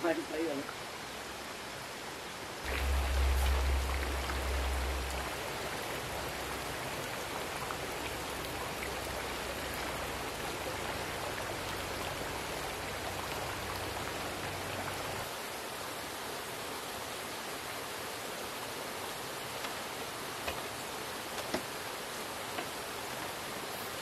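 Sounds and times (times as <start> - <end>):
water hissing: 2.6 - 15.3
low rumble: 2.7 - 11.5.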